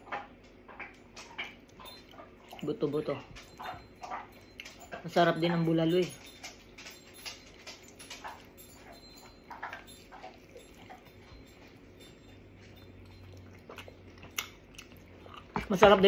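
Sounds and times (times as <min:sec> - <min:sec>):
lips smacking and chewing: 0:07.8 - 0:15.8.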